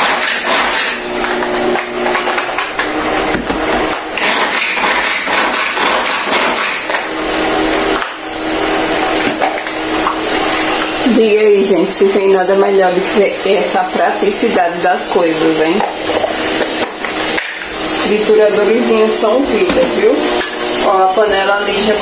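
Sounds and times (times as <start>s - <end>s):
manual food chopper rattling: 0.0s - 11.1s, 15.7s - 18.1s.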